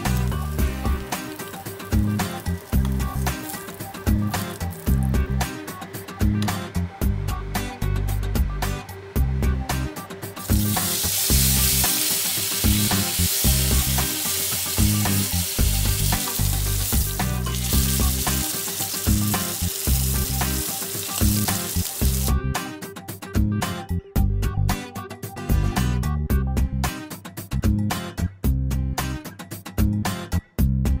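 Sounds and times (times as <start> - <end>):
fish sizzling in hot oil: 0.0 - 5.1, 10.4 - 22.3
background music: 0.0 - 31.0.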